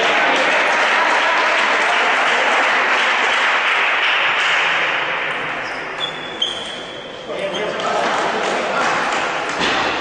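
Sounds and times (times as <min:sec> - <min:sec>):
spectators applauding: 0:00.0 - 0:05.6.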